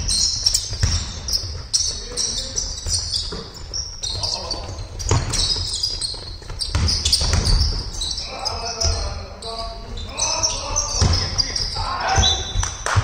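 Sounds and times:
basketball dribbling thumps: 0.0s - 8.2s, 10.8s - 13.0s
sneakers squeaking on court: 0.0s - 13.0s
players calling out: 0.1s - 13.0s.

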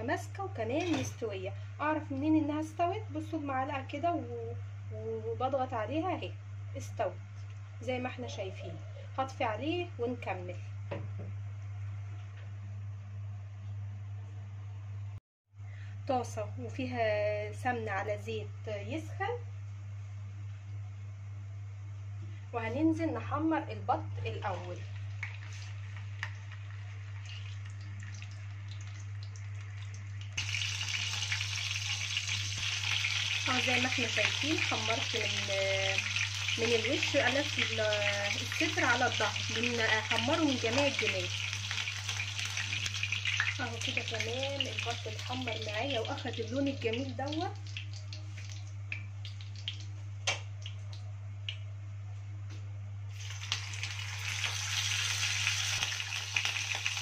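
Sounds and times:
fat sizzling in a pan: 24.4s - 48.6s, 53.1s - 57.0s
hot oil popping and spitting: 24.9s - 51.7s, 53.1s - 57.0s.

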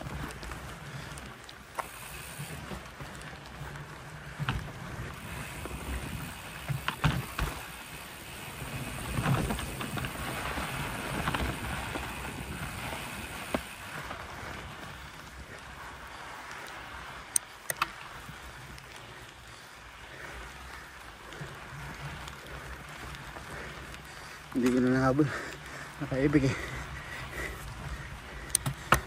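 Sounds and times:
wind noise: 0.0s - 19.3s
bike tyres on dirt: 0.0s - 29.0s
bike knocks and rattles: 1.7s - 14.2s, 28.5s - 29.0s
sharp clicks: 16.6s - 18.1s.

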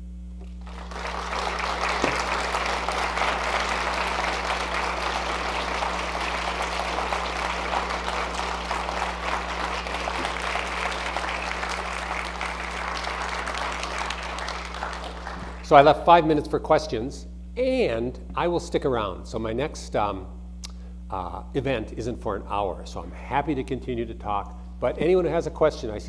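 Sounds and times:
mains hum: 0.0s - 26.0s
audience applauding: 0.4s - 15.9s.

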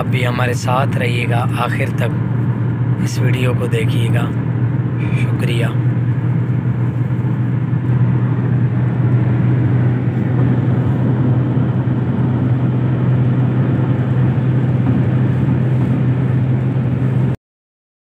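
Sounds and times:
car road and engine drone: 0.0s - 17.4s.

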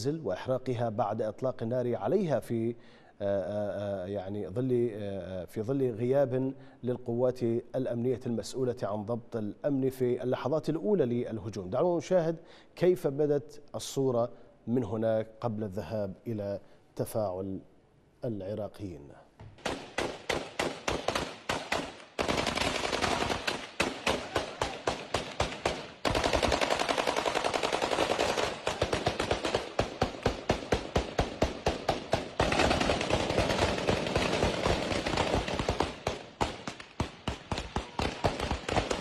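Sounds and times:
heavy automatic gunfire: 19.6s - 39.0s.

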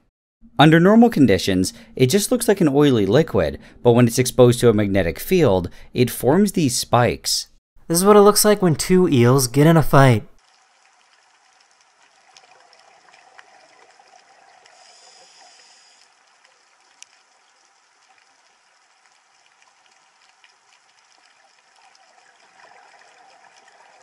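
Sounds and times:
underwater watery hiss: 14.6s - 16.1s.

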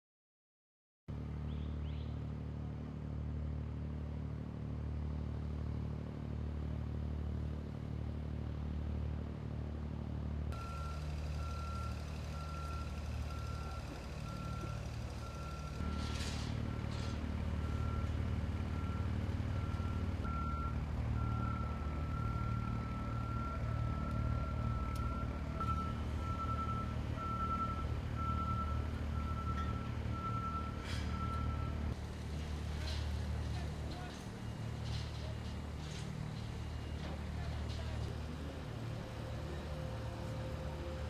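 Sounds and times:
heavy vehicle engine running: 1.1s - 41.0s
backup alarm beeping: 10.6s - 16.1s.

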